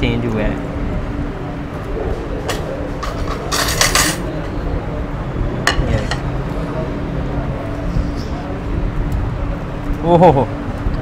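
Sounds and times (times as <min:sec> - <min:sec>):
steady low hum: 0:00.0 - 0:11.0
spoon and dishes clinking: 0:03.0 - 0:04.3.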